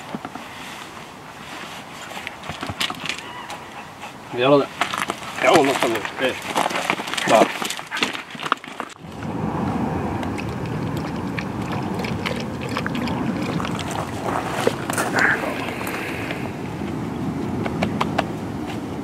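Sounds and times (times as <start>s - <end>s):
dog lapping water: 2.1s - 9.0s, 10.0s - 16.5s
wind rumble on microphone: 9.0s - 19.0s.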